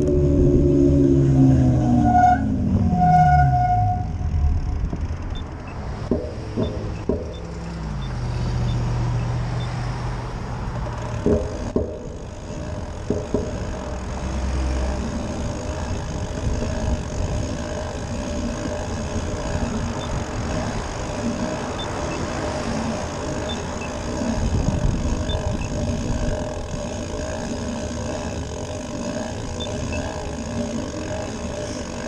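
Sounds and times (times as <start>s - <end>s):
car engines passing: 0.0s - 17.2s, 17.9s - 25.2s
tyres on asphalt: 0.0s - 32.0s
short knocks: 6.0s - 7.6s.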